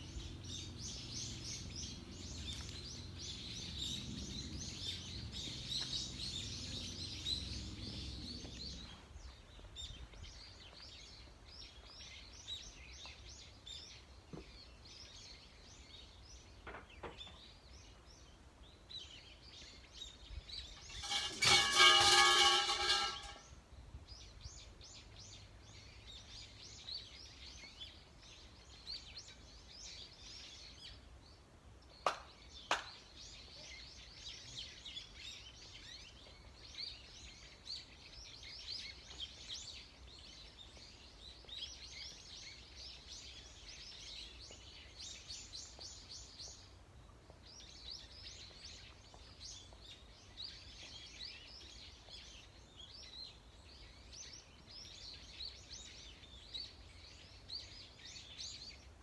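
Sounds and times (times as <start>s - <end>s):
small birds chirping: 0.0s - 59.0s
shrine bells jangling: 20.9s - 23.5s
sharp hand claps: 32.0s - 33.0s.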